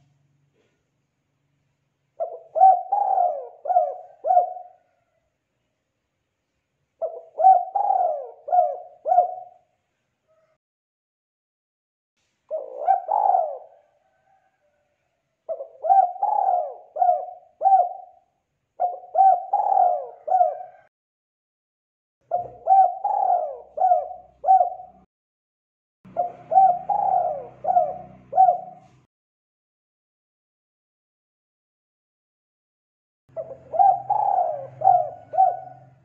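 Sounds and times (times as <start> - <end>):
dove cooing: 2.2 - 5.1, 7.0 - 9.7, 12.5 - 14.7, 15.5 - 20.9, 22.2 - 25.1, 26.1 - 29.1, 33.3 - 36.0.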